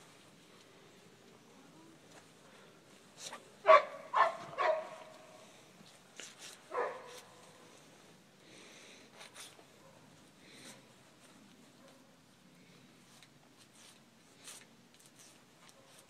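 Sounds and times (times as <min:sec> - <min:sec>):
dog barking: 0:03.6 - 0:05.1, 0:06.7 - 0:07.2.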